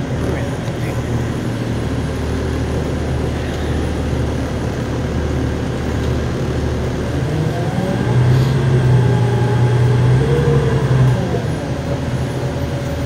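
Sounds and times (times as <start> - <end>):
bus diesel engine droning: 0.0 - 13.0.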